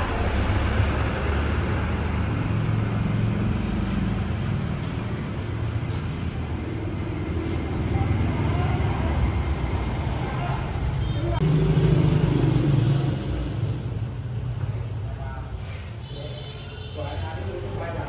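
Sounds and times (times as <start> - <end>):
road traffic rumble: 0.0 - 18.0.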